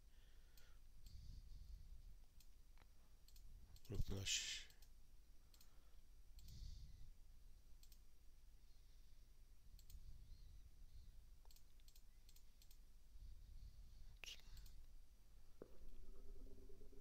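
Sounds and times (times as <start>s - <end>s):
low room hum: 0.0s - 17.0s
computer mouse clicks: 2.4s - 5.8s, 6.4s - 6.6s, 7.8s - 8.1s, 9.7s - 10.0s, 11.4s - 12.8s, 14.2s - 15.0s.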